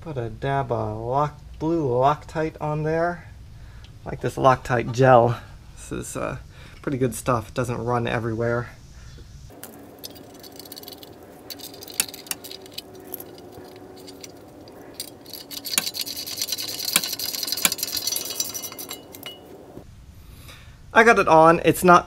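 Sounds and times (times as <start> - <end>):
hand tool clicking on metal: 9.5 - 19.8.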